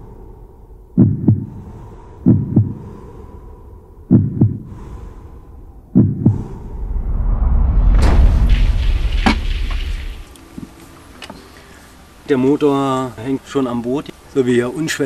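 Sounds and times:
faint steady hum: 0.0s - 7.0s, 8.1s - 15.0s
low rumble: 0.0s - 10.9s
heartbeat thumps: 1.0s - 1.6s, 2.2s - 2.8s, 4.1s - 4.8s, 5.9s - 6.7s.

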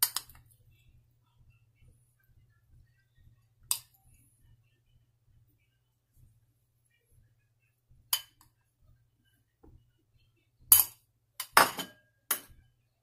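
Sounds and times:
metal spoon clinking on bowls: 10.7s - 12.6s.

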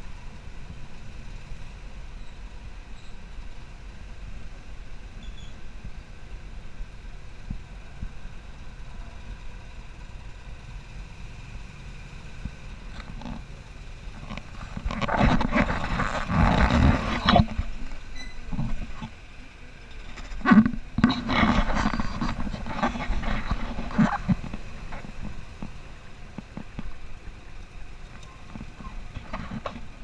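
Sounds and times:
buggy engine running: 0.0s - 30.0s
vehicle rattling and knocking: 12.4s - 19.2s, 19.9s - 30.0s.

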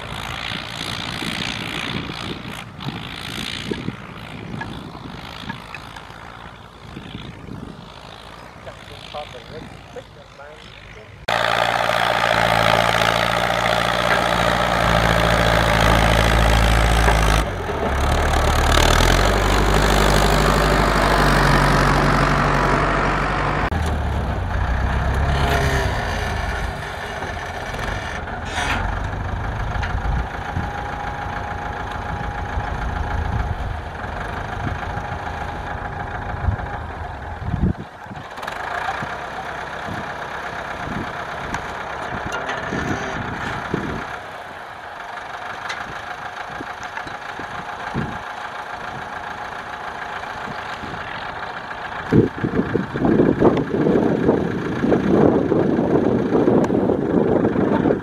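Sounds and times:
tractor diesel engine under load: 0.0s - 58.0s
engine knocking: 29.1s - 58.0s.

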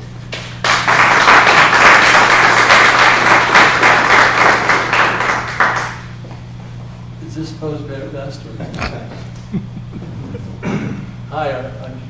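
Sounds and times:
audience applauding: 0.3s - 6.1s.

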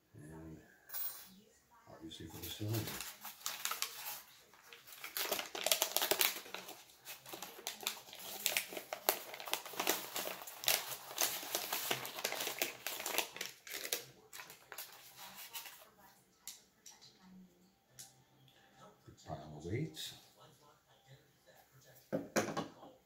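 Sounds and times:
plastic and paper wrapping crinkling: 2.3s - 16.1s.

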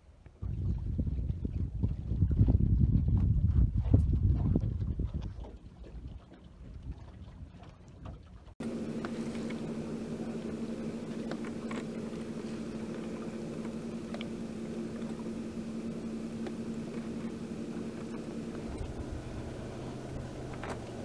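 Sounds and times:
water lapping along hull: 0.4s - 21.0s
low hum: 8.6s - 21.0s.

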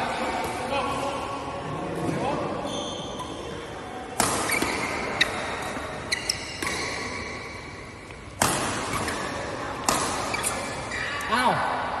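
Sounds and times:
shoes squeaking on court floor: 2.0s - 11.4s
rackets striking shuttlecock: 4.1s - 10.8s.

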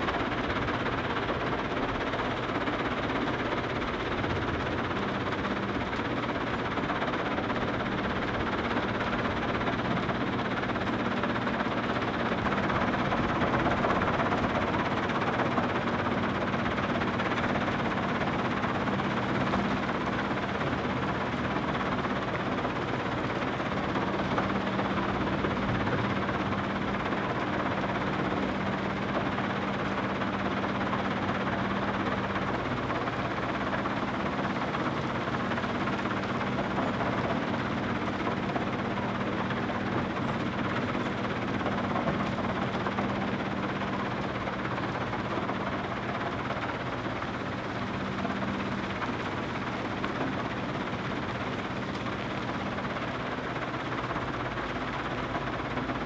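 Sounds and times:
heavy machinery diesel engines: 0.0s - 56.0s.

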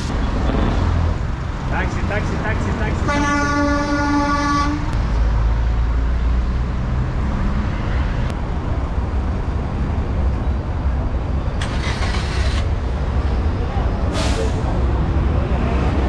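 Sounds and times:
traffic engine rumble: 0.0s - 16.0s
vehicle horn: 3.0s - 5.0s.

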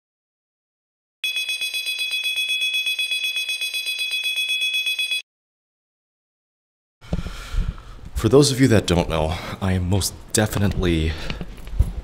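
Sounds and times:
two-tone electronic alarm ringing: 1.2s - 5.2s.

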